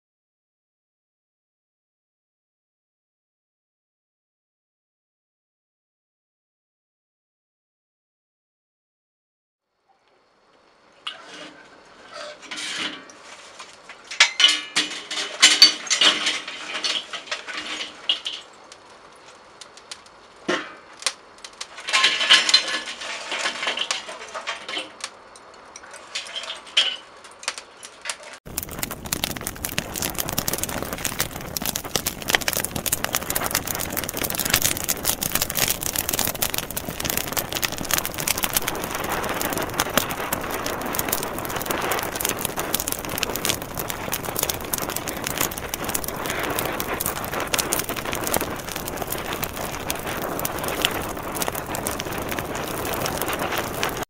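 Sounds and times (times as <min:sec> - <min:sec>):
dense crackling hiss: 0:09.7 - 0:54.0
charcoal clattering and crackling: 0:10.9 - 0:54.0.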